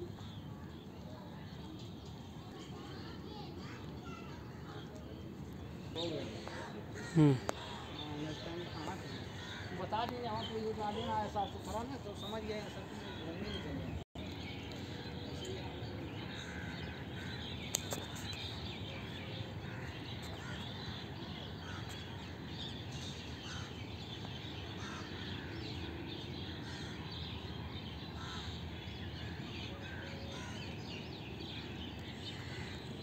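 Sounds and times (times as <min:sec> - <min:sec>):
crows cawing: 0:06.4 - 0:08.0, 0:09.0 - 0:10.0, 0:24.8 - 0:25.7, 0:32.2 - 0:32.9.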